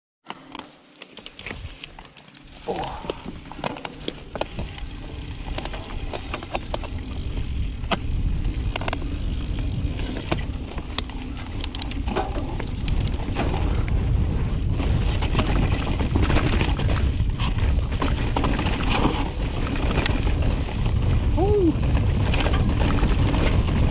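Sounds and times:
bike clicks and rattles: 0.2 - 23.9
bike tyres rumbling on trail: 1.1 - 23.9
wind on microphone: 12.0 - 23.9.

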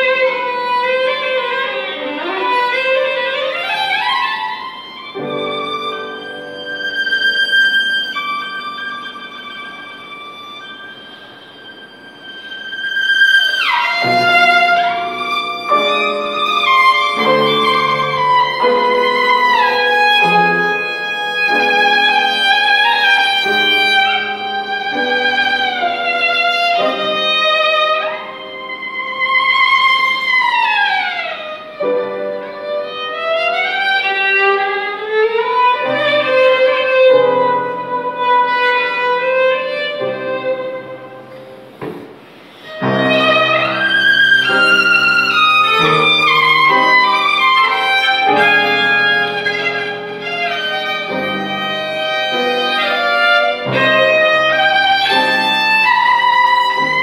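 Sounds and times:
solo violin melody: 0.0 - 57.0.

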